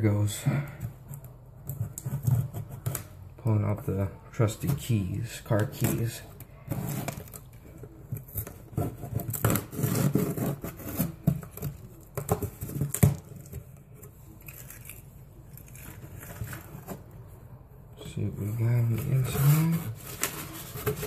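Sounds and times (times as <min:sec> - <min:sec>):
cardboard handling: 0:04.4 - 0:17.4, 0:18.4 - 0:21.0.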